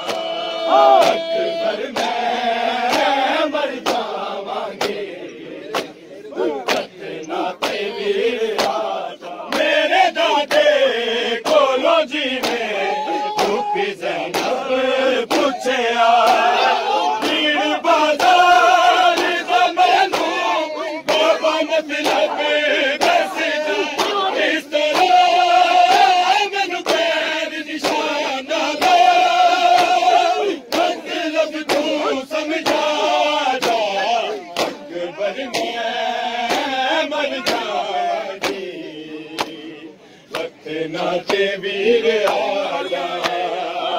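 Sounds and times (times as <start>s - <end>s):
hands slapping chests: 0.0s - 1.2s, 2.9s - 3.2s, 3.8s - 5.1s, 5.7s - 6.0s, 6.6s - 7.8s, 8.5s - 8.9s, 12.4s - 14.6s, 15.2s - 15.6s, 19.1s - 20.5s, 22.0s - 22.3s, 23.0s - 24.3s, 31.6s - 32.0s, 33.6s - 33.9s, 34.5s - 34.9s, 35.5s - 35.8s, 36.5s - 36.8s, 38.4s - 38.7s, 39.4s - 39.6s, 40.3s - 40.6s, 43.2s - 43.5s
men chanting a lament: 0.0s - 43.9s.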